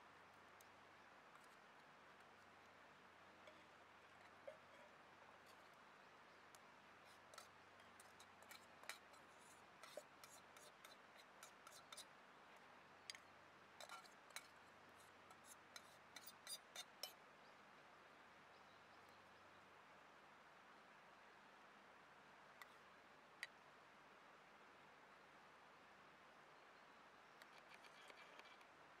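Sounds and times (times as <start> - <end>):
spoon scraping metal pot: 3.4 - 5.7, 7.0 - 12.0, 13.8 - 14.5, 15.3 - 17.1.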